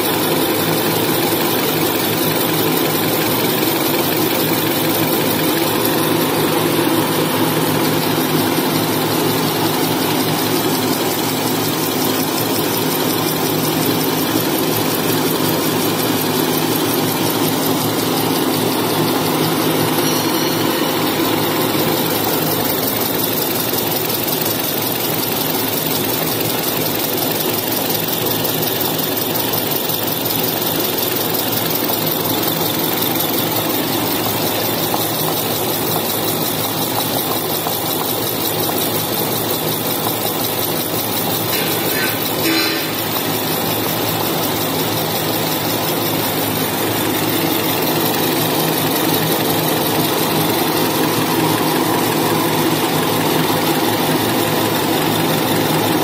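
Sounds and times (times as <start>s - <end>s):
steady hum: 0.0s - 24.5s, 40.0s - 52.2s
machine drone: 0.0s - 56.0s.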